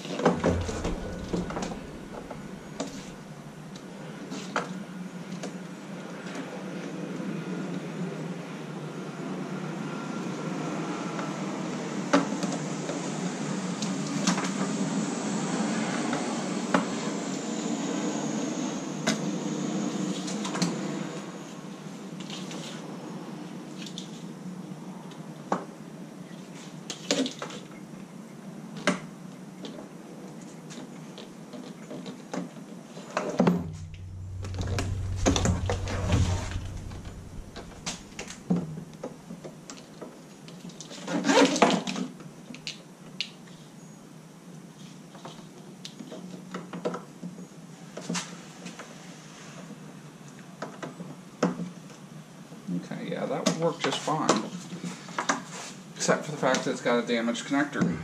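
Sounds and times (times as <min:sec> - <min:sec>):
loud clatter: 0:00.2 - 0:03.8, 0:33.5 - 0:39.0
low rumble: 0:00.2 - 0:04.1, 0:33.5 - 0:39.3.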